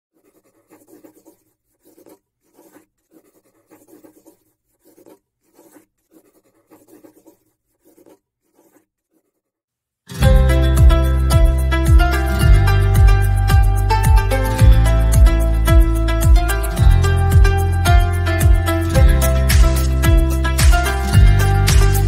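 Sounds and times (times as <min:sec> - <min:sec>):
scratchy drawing on paper: 0:00.1 - 0:09.7
loud music: 0:10.2 - 0:22.0.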